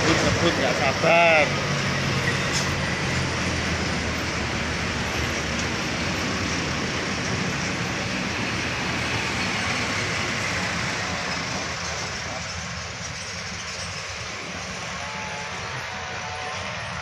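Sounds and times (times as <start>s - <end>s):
road noise: 0.0s - 17.0s
trucks passing: 0.0s - 17.0s.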